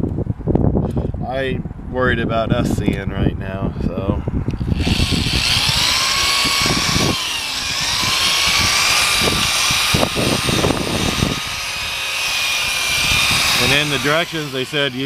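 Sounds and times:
electric drill motor whine: 4.6 - 15.0
sandpaper hiss: 11.6 - 15.0.

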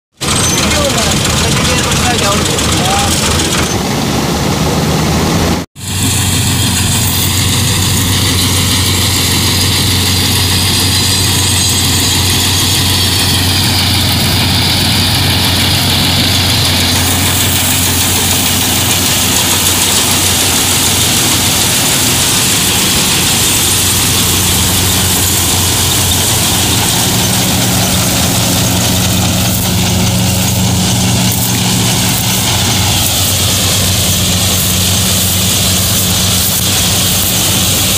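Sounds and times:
diesel engine hum: 0.1 - 37.9
harvester machinery rushing: 0.2 - 37.9.

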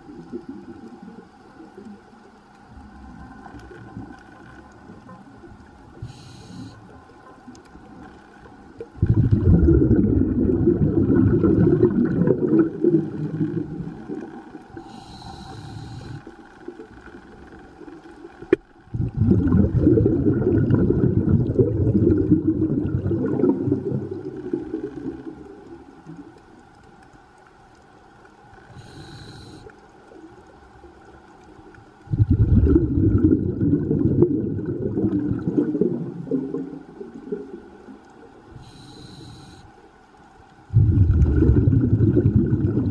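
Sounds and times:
exhaled bubbles underwater: 0.0 - 27.0, 28.6 - 39.6, 40.6 - 42.9
regulator inhalation hiss: 5.9 - 7.0, 14.8 - 16.3, 28.6 - 29.7, 38.5 - 39.8.

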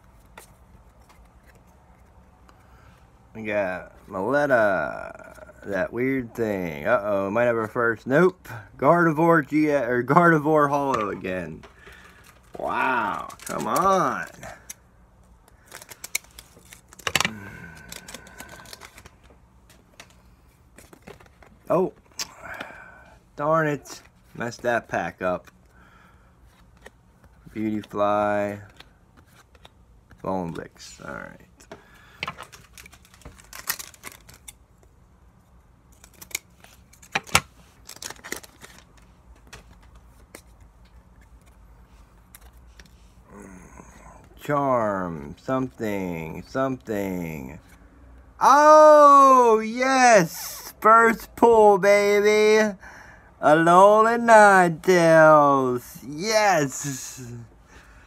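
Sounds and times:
cards and foil wrapper rustling: 10.3 - 21.9, 26.4 - 34.6, 35.9 - 43.2
trading cards clicking: 13.0 - 14.8.

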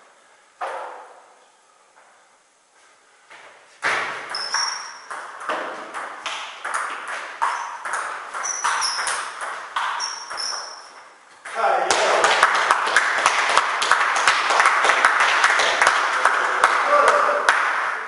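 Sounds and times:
shoes squeaking: 3.8 - 6.0, 6.7 - 11.5
table tennis ball hitting bats: 3.8 - 18.0.

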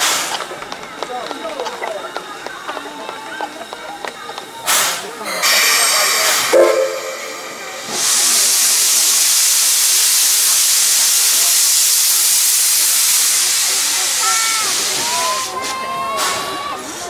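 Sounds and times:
steam hissing from locomotive: 0.0 - 0.6, 2.1 - 17.0
brief pitched sound: 5.3 - 8.0.

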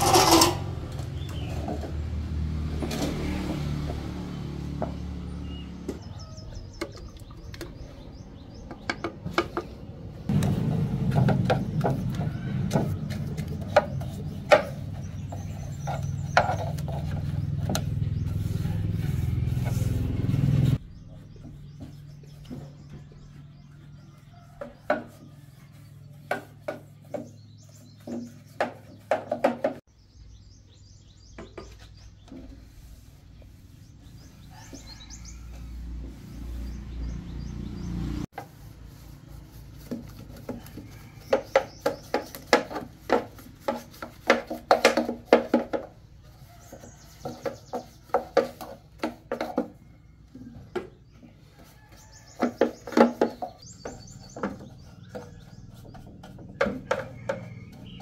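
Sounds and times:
metal tool scraping concrete: 0.0 - 1.7
birds chirping: 1.0 - 1.9, 4.3 - 58.0.

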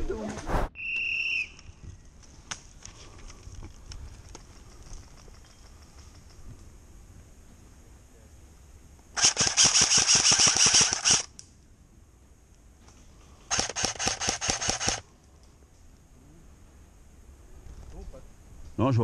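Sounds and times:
airsoft rifle firing bursts: 9.2 - 11.3, 13.5 - 15.0.

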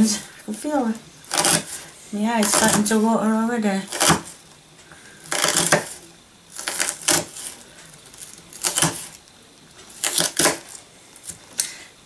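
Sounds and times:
knife slicing onion on wooden board: 1.3 - 1.8, 3.9 - 4.4, 5.3 - 6.0, 6.6 - 7.6, 8.5 - 9.2, 9.9 - 11.4.

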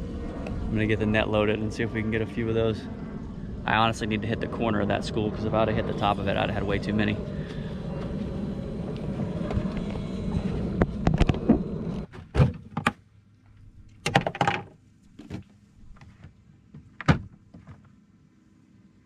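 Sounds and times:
wind on microphone: 0.0 - 12.1
knocks and thuds of gear: 14.0 - 17.9.

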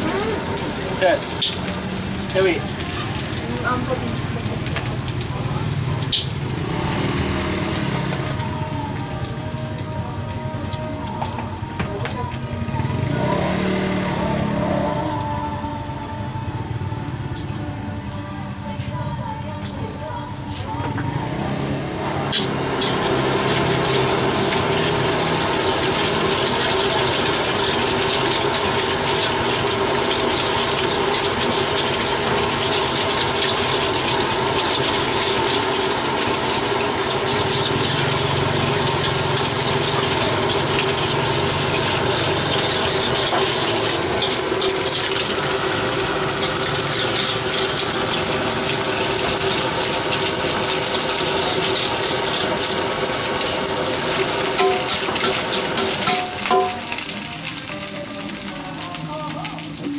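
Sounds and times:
gas flame roaring: 0.0 - 8.7, 21.1 - 57.1
egg sizzling: 0.0 - 11.7, 22.2 - 59.9.

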